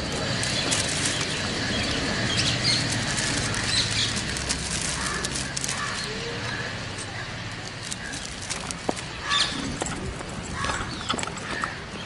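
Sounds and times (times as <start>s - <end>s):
cellophane crinkling: 0.2s - 6.4s, 7.7s - 9.1s.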